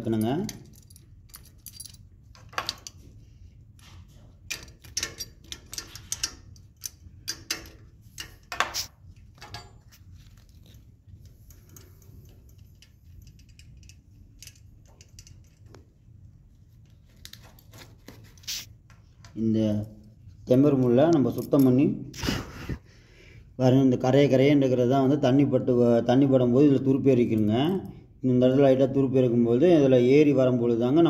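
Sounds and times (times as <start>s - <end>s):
low steady hum: 0.0s - 31.0s
metal clicks and clinks: 0.1s - 3.0s, 4.4s - 8.7s, 11.3s - 15.8s.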